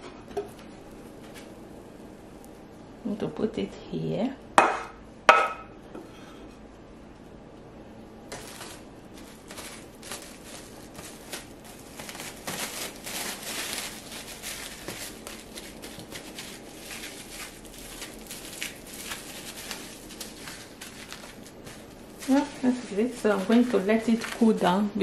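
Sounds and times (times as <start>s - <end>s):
cling film crinkling: 8.3s - 24.9s.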